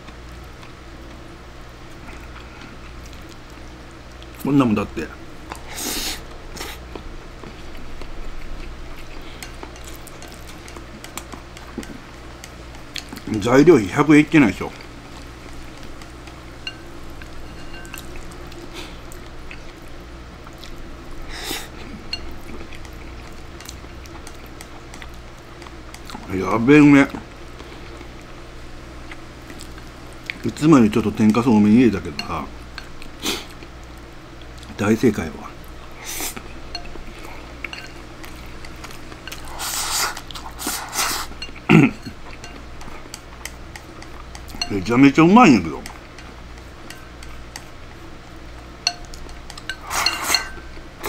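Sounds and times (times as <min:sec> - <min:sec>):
low room hum: 0:00.0 - 0:51.0
chopsticks clinking on bowl: 0:08.6 - 0:13.3, 0:15.5 - 0:18.7, 0:32.0 - 0:33.0, 0:36.3 - 0:39.6, 0:41.3 - 0:47.8, 0:48.8 - 0:50.9
person slurping: 0:39.4 - 0:42.0
chopsticks clicking on bowl: 0:41.4 - 0:44.9.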